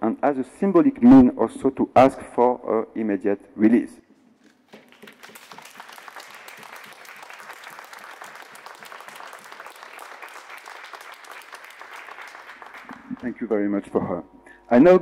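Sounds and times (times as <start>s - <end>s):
audience applauding: 4.7s - 13.8s.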